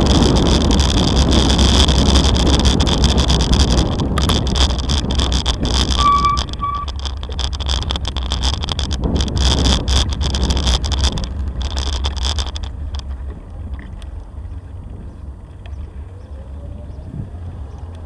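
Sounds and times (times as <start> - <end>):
bicycle rattling over cobblestones: 0.0 - 18.0
wind on microphone: 0.0 - 18.0
short high beeps: 6.0 - 6.9.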